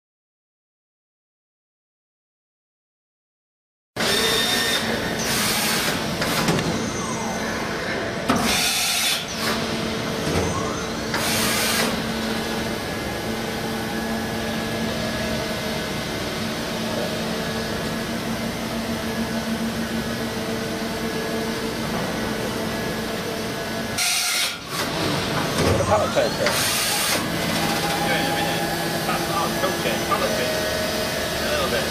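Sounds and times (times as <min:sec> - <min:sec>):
machine drives humming: 0:24.7 - 0:31.9.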